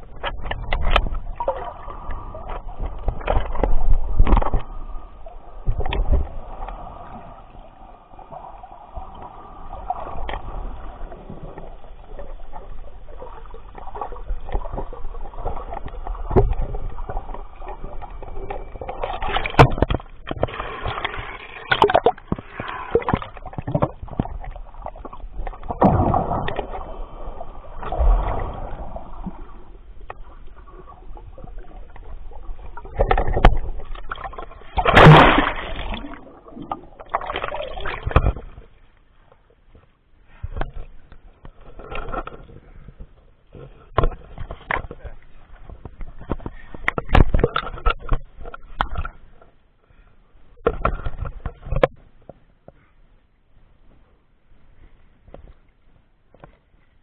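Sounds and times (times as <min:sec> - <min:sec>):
splashing and bubbling: 0:00.0 - 0:38.8
underwater water sloshing: 0:00.0 - 0:53.0.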